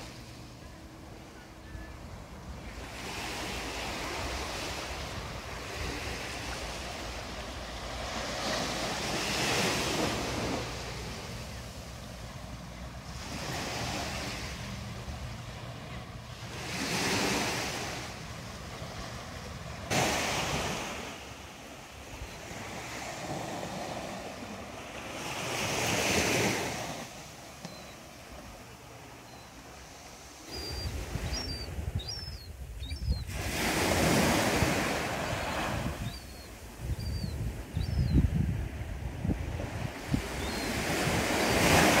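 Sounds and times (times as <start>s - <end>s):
small waves breaking on beach: 1.7s - 31.9s, 33.3s - 36.8s, 38.7s - 42.0s
faint high bird chirps: 27.6s - 28.1s, 29.2s - 29.6s, 30.4s - 33.3s, 36.0s - 38.3s, 40.3s - 40.8s
wind buffeting microphone: 30.8s - 42.0s.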